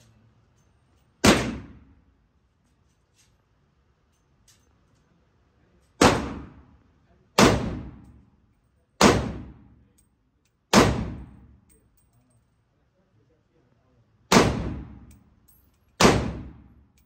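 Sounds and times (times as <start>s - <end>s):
gunshots with echo: 1.2s - 1.9s, 9.0s - 9.6s, 10.7s - 11.3s, 14.3s - 15.0s, 16.0s - 16.6s.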